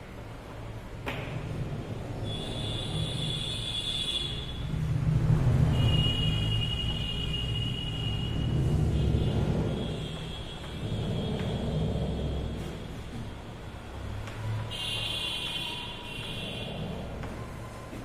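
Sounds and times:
steady low rumble: 8.2s - 13.4s.

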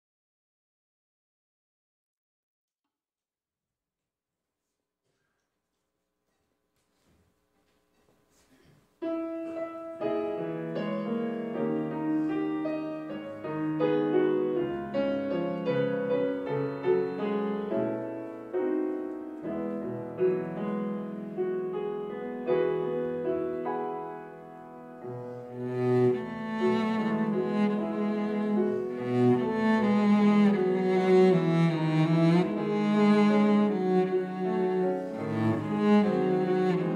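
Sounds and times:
grand piano: 8.5s - 36.9s
cello playing sustained notes: 25.1s - 36.9s.

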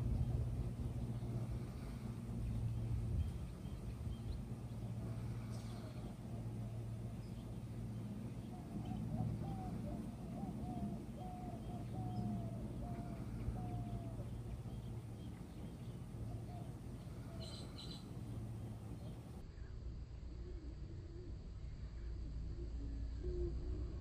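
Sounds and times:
bees droning: 4.4s - 19.3s.

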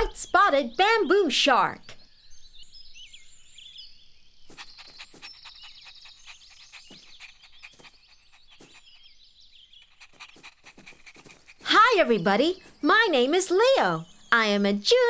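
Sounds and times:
birds chirping and twittering: 0.0s - 15.0s
rapid bird trill: 4.4s - 14.7s.

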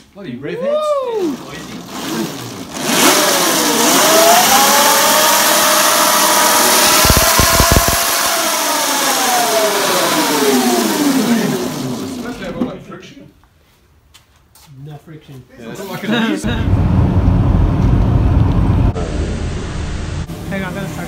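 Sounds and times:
rushing noise of spinning wheel: 1.4s - 12.4s
electric motorbike motor whine: 2.9s - 12.3s.

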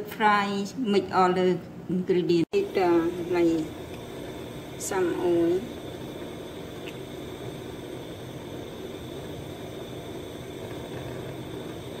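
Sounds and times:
whirring hiss: 2.6s - 12.0s.

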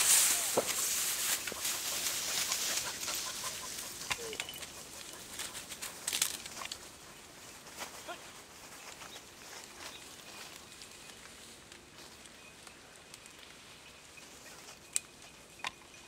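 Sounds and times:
dry grass rustling and crackling: 0.0s - 16.0s
distant animal calls: 0.2s - 5.6s.

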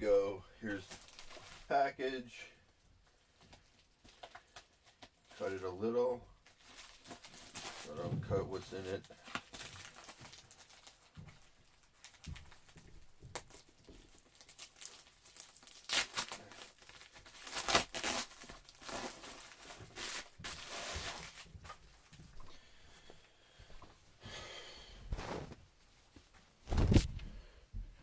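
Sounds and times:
plastic bag ripping and rustling: 0.8s - 1.7s, 6.5s - 21.8s, 26.7s - 27.1s.

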